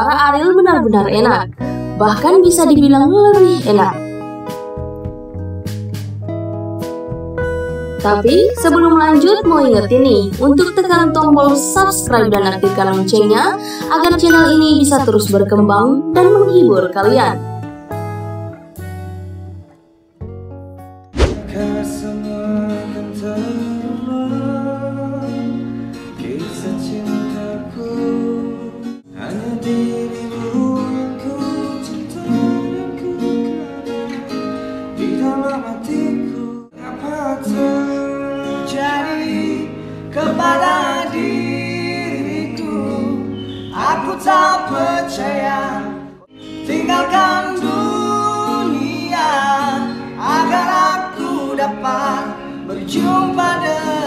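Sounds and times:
acoustic guitar: 0:00.0 - 0:54.0
man singing: 0:21.3 - 0:33.8, 0:35.0 - 0:54.0.

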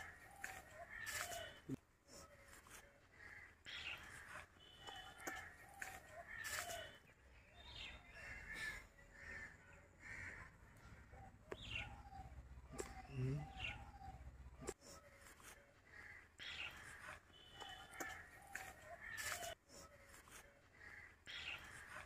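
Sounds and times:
crows cawing: 0:03.1 - 0:04.4, 0:08.1 - 0:11.1, 0:15.9 - 0:17.0, 0:20.8 - 0:21.8.

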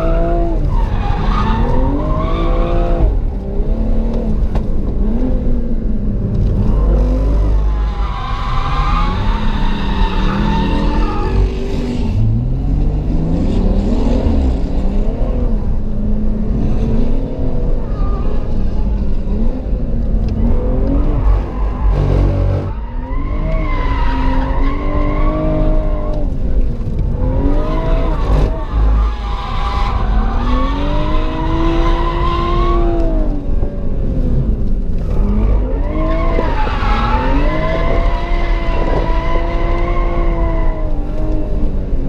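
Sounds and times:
tyres squealing and skidding: 0:00.0 - 0:03.2, 0:06.7 - 0:12.4, 0:20.4 - 0:26.3, 0:27.2 - 0:33.3, 0:35.2 - 0:41.4
car engine revving: 0:00.0 - 0:42.0.

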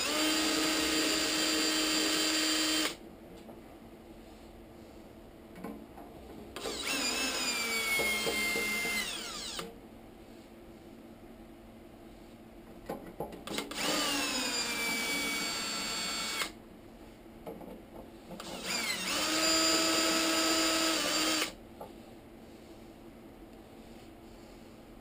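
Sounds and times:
cordless drill whine: 0:00.0 - 0:03.0, 0:06.6 - 0:09.7, 0:13.5 - 0:16.6, 0:18.4 - 0:21.6.

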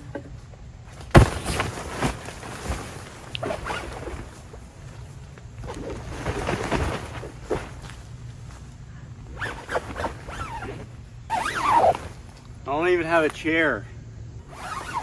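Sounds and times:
nylon fabric rustling: 0:01.1 - 0:08.5, 0:09.3 - 0:12.5, 0:14.4 - 0:15.0
sliding pitch calls: 0:09.4 - 0:12.2.

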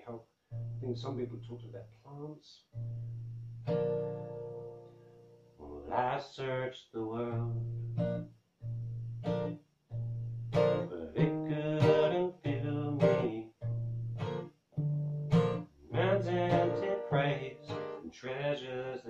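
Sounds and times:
acoustic guitar strumming: 0:00.5 - 0:01.0, 0:02.8 - 0:06.1, 0:07.2 - 0:18.5
man singing: 0:05.6 - 0:07.7, 0:10.8 - 0:13.6, 0:15.9 - 0:19.0.

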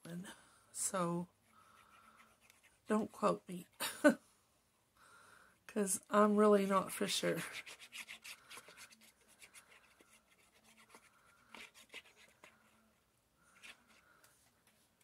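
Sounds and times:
glue nozzle scratching on card: 0:07.4 - 0:12.8.

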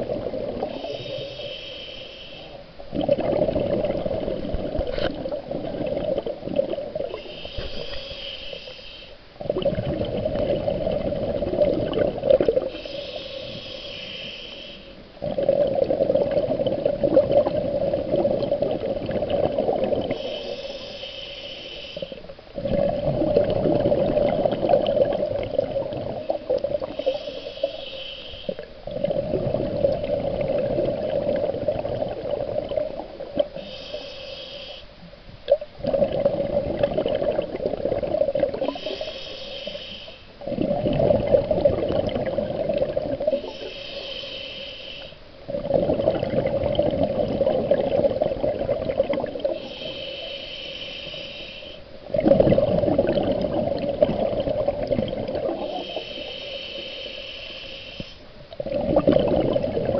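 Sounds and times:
bubbling exhale underwater: 0:00.0 - 0:01.3, 0:02.9 - 0:08.0, 0:09.4 - 0:12.8, 0:15.2 - 0:20.4, 0:22.6 - 0:27.8, 0:28.8 - 0:33.7, 0:35.5 - 0:39.1, 0:40.4 - 0:44.0, 0:45.5 - 0:50.0, 0:52.0 - 0:56.4, 0:58.5 - 0:59.9
regulator inhalation hiss: 0:00.7 - 0:02.6, 0:07.1 - 0:09.2, 0:12.6 - 0:15.0, 0:20.1 - 0:22.3, 0:26.2 - 0:28.7, 0:33.5 - 0:35.0, 0:38.6 - 0:40.4, 0:43.3 - 0:45.3, 0:49.4 - 0:52.0, 0:55.5 - 0:58.3.

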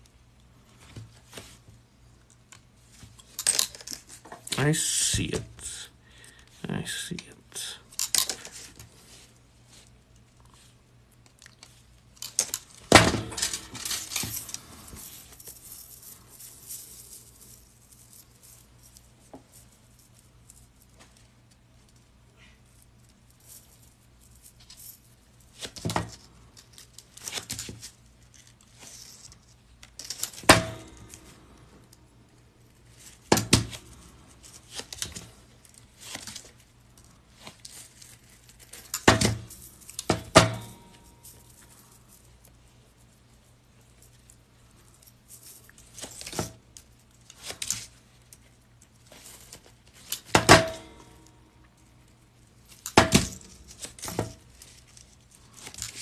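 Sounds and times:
metal rings clinking and jingling: 0:13.3 - 0:20.8.

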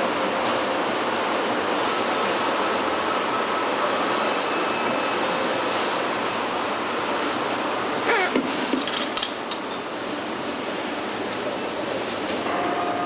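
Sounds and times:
assembly line machinery: 0:00.0 - 0:07.5.

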